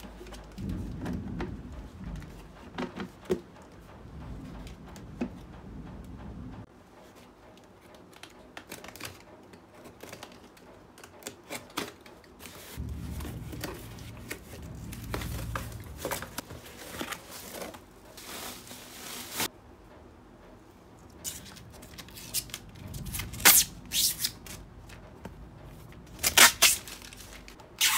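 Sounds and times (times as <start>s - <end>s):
bubble wrap crinkling: 12.4s - 19.5s, 26.2s - 27.9s
packing tape tearing: 21.2s - 24.6s, 26.2s - 27.9s.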